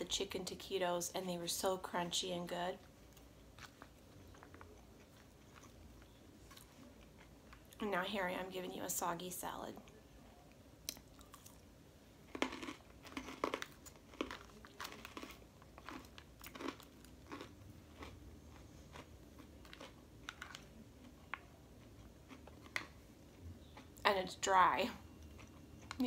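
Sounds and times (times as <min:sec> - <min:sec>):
chewing crisp lettuce: 0:02.8 - 0:07.8, 0:09.8 - 0:24.0.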